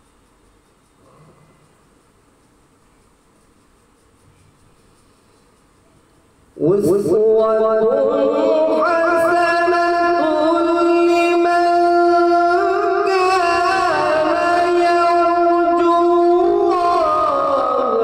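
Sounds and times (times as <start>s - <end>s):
man reciting melodically: 6.5s - 18.0s.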